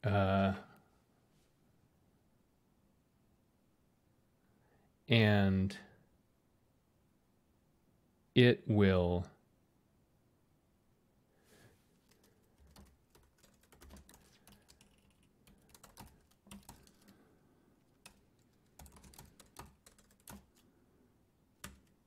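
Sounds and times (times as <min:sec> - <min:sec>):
computer keyboard typing: 0:12.1 - 0:17.2, 0:17.9 - 0:20.6, 0:21.6 - 0:22.0.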